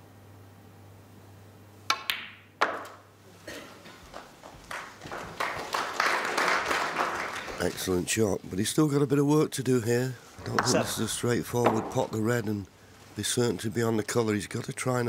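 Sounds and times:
snooker balls clicking: 1.9s - 3.1s, 10.4s - 12.2s
snooker cue striking ball: 1.9s - 3.1s, 11.6s - 12.1s
audience applause: 4.1s - 8.0s.

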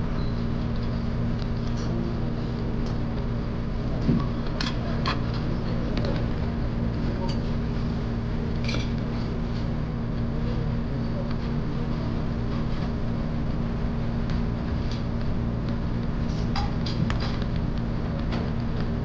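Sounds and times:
mechanical hum: 0.0s - 19.0s.

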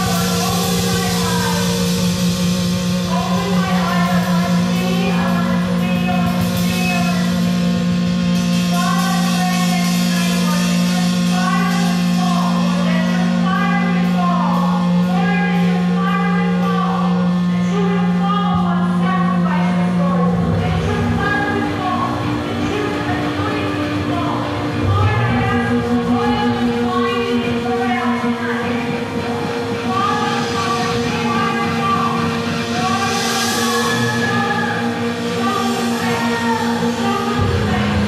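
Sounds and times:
low drone: 0.0s - 38.0s
song with sung vocals: 18.8s - 38.0s.

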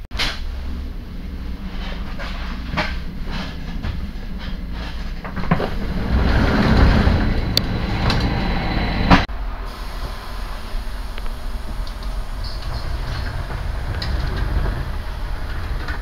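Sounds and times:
clicks over rail joints: 0.0s - 8.4s, 11.2s - 16.0s
train rumbling over track: 0.0s - 16.0s.

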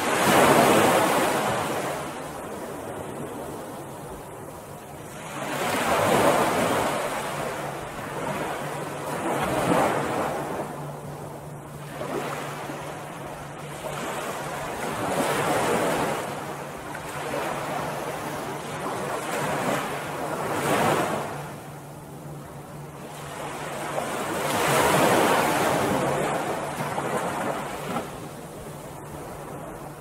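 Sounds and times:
ocean surf breaking on beach: 0.0s - 4.4s, 5.0s - 10.8s, 23.2s - 30.0s.

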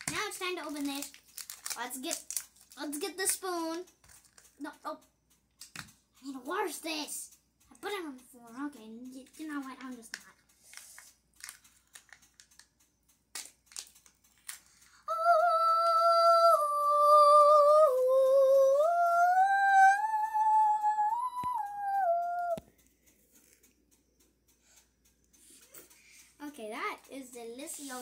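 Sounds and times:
plastic clicks and rustles: 0.0s - 6.0s, 9.1s - 15.0s
child humming a tune: 15.1s - 22.6s.

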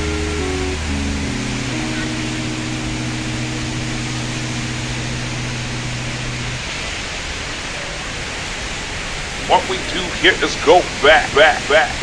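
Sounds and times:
held music chord: 0.0s - 7.3s
indoor waterfall rushing: 0.0s - 12.0s.

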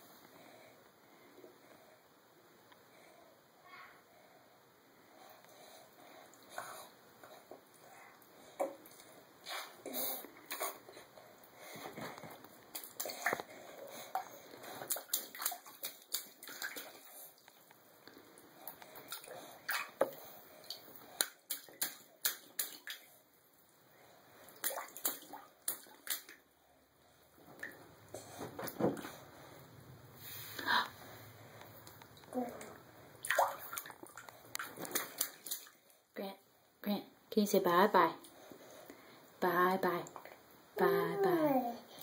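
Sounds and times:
bathwater splashing and sloshing: 8.6s - 17.7s, 18.3s - 23.2s, 24.3s - 26.5s, 31.8s - 36.0s.

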